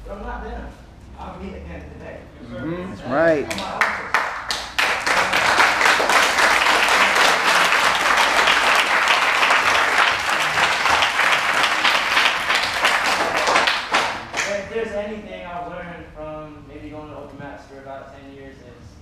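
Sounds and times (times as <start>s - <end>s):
crowd applauding: 3.4s - 14.6s.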